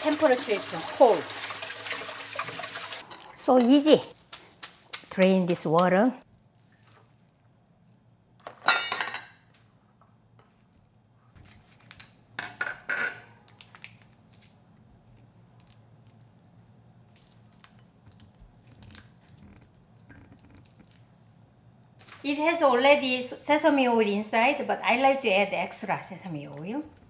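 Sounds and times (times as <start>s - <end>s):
metal kitchenware clattering on stone: 8.6s - 9.4s, 12.4s - 13.3s.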